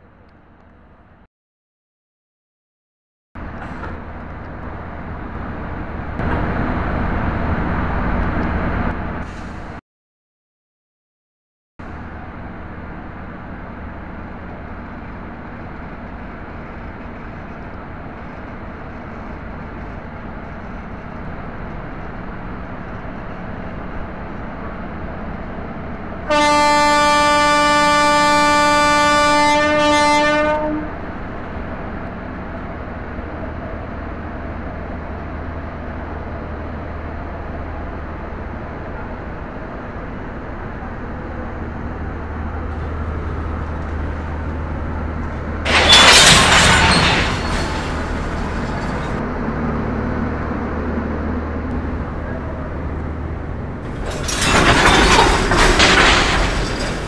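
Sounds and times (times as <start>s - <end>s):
train rumble: 3.4s - 9.8s, 11.8s - 57.0s
train horn blast: 26.3s - 31.0s.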